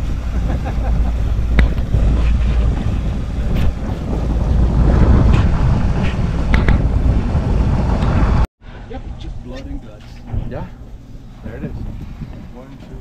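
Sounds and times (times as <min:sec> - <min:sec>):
water washing: 0:00.0 - 0:08.5
wind buffeting microphone: 0:00.0 - 0:13.0.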